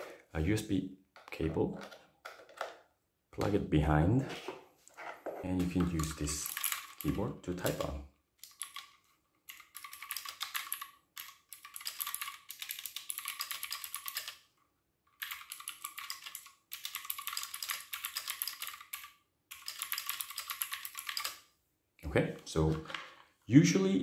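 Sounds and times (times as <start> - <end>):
mechanical keyboard typing: 5.6 - 14.5, 15.2 - 21.4.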